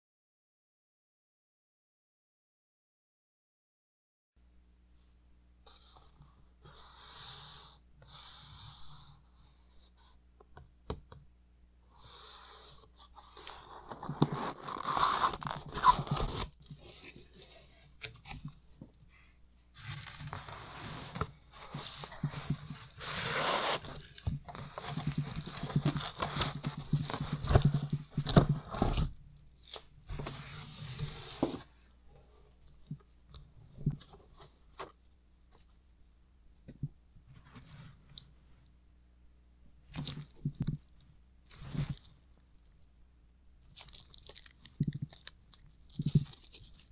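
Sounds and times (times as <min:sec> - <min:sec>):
cardboard tearing and rustling: 0:13.5 - 0:18.5, 0:19.8 - 0:31.6.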